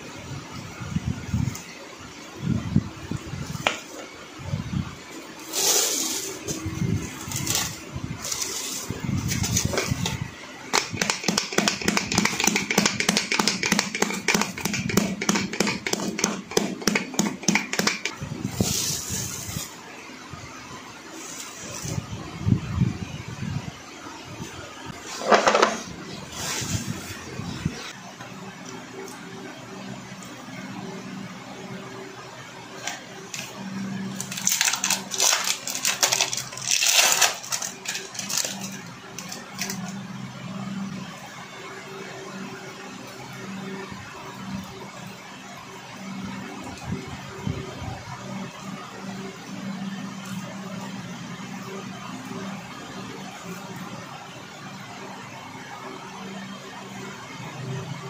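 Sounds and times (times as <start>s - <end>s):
rolling pin pounding on cutting board: 10.7s - 18.1s
plastic wrapper crinkling: 34.2s - 39.8s.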